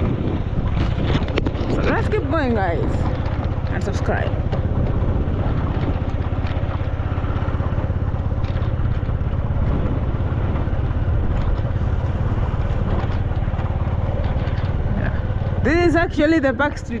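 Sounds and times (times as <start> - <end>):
vehicle engine and road rumble: 0.0 - 17.0.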